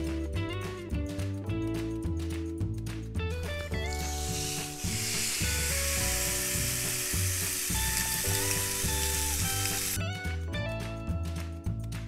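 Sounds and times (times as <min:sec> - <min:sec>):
meat sizzling on grill pan: 0:03.5 - 0:10.0.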